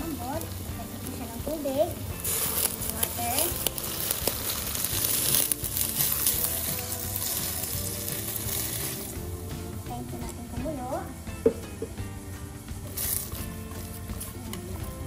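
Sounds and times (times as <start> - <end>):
water pouring and splashing: 0.0 - 9.2, 12.6 - 15.0.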